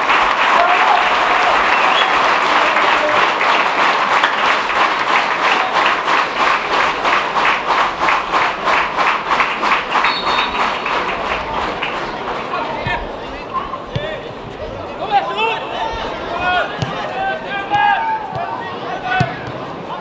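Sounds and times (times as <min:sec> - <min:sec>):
crowd clapping: 0:00.0 - 0:12.8.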